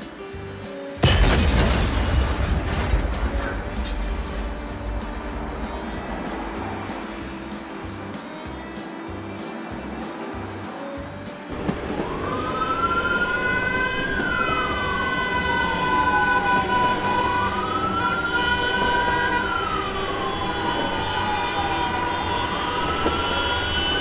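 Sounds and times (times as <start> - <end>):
low vehicle rumble: 1.8 - 8.2
emergency vehicle siren wailing: 11.5 - 24.0.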